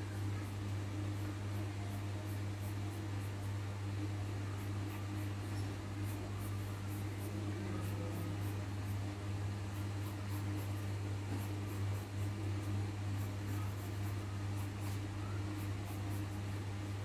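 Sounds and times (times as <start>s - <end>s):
steady low hum: 0.0s - 17.0s
pencil scratching on paper: 4.4s - 17.0s.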